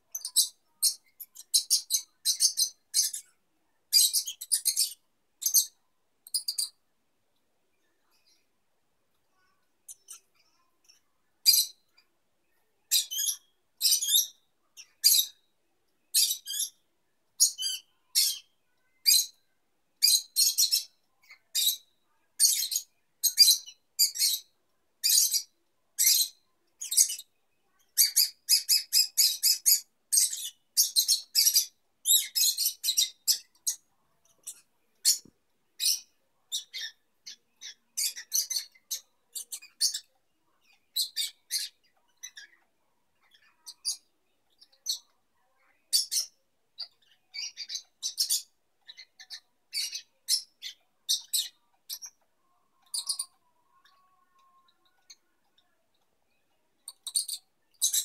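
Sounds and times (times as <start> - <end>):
lovebirds chirping: 0.0 - 6.8, 7.4 - 58.0.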